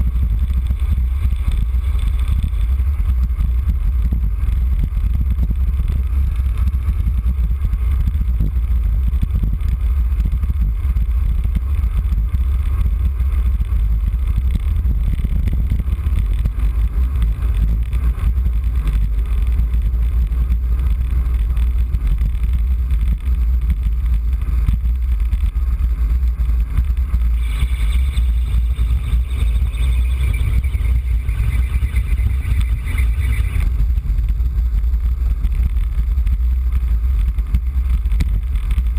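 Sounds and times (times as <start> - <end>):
high wavering squeal: 27.4 - 33.7.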